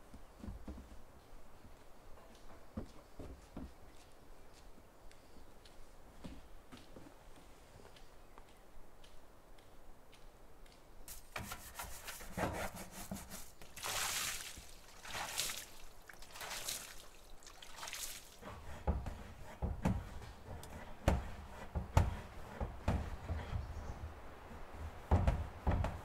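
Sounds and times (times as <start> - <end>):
water sloshing in plastic tank: 11.3 - 20.0
water spilling onto ground: 13.6 - 18.4.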